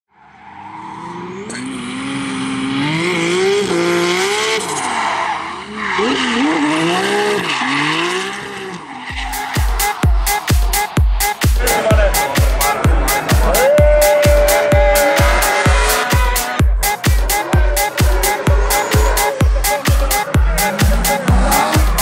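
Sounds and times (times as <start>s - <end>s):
tyres skidding and squealing: 0.1s - 22.0s
car engine revving: 0.5s - 22.0s
music with thumping beat: 9.1s - 22.0s.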